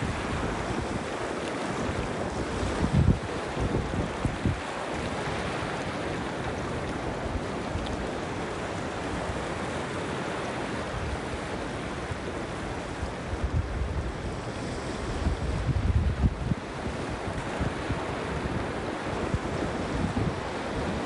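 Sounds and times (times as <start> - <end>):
wind buffeting microphone: 0.0 - 5.9, 12.2 - 21.0
small waves breaking on shore: 0.0 - 21.0.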